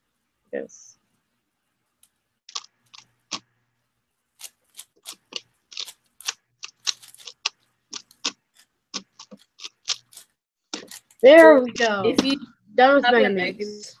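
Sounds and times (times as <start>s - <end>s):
puzzle cube layers clicking: 2.5s - 3.5s, 4.4s - 8.4s, 9.0s - 11.2s.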